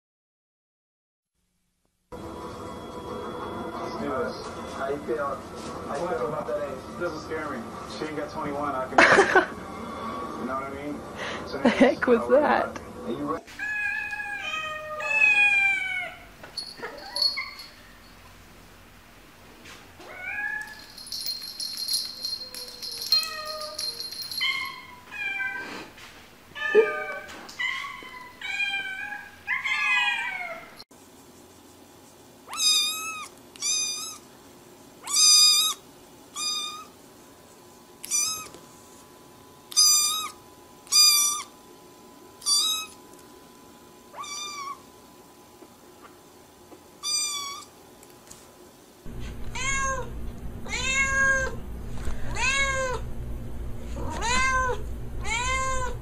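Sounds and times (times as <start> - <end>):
cats meowing: 13.5 - 17.7, 20.0 - 20.8, 22.2 - 25.7, 26.6 - 30.8, 38.0 - 38.6, 44.1 - 44.8, 49.2 - 51.6, 52.2 - 53.1, 54.0 - 56.0
steady low hum: 49.1 - 56.0.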